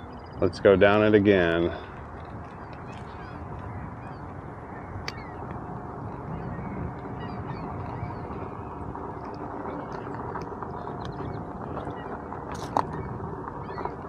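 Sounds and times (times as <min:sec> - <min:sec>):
birds calling: 0:00.0 - 0:14.0
knobby tyre rolling on dirt: 0:00.0 - 0:14.0
wind rushing on microphone: 0:00.0 - 0:14.0.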